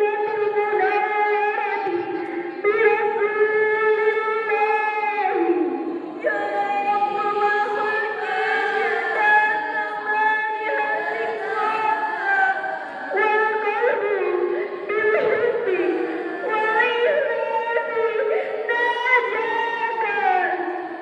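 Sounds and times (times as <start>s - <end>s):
girls singing in unison: 6.1s - 18.0s.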